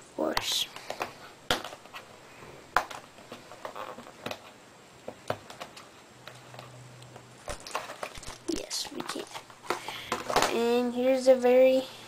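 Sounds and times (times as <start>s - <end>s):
plastic blister pack crackling: 7.4s - 10.5s.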